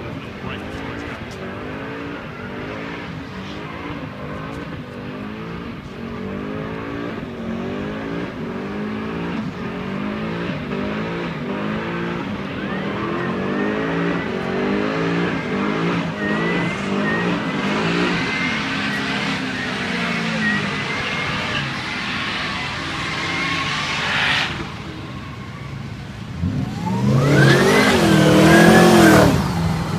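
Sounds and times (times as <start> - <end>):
distant car engine revving: 0.0 - 29.9
tyre squeal: 12.4 - 29.5.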